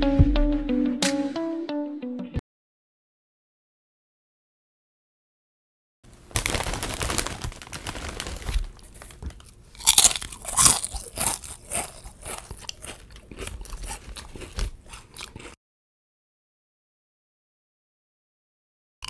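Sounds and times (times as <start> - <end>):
potato chips crunching: 6.2 - 15.6.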